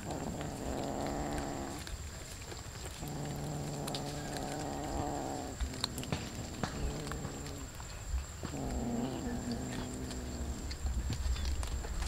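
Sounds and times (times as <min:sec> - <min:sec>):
cat growling low: 0:00.0 - 0:01.9, 0:02.5 - 0:07.8, 0:08.5 - 0:11.0.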